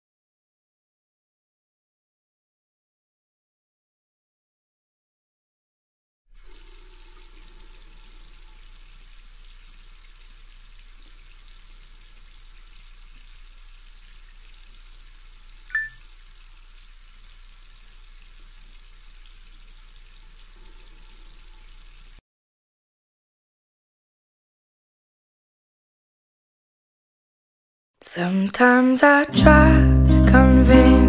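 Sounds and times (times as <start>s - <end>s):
hands washing under water: 6.4s - 22.2s
tap water running into sink: 6.4s - 22.2s
sharp ping: 15.7s - 16.0s.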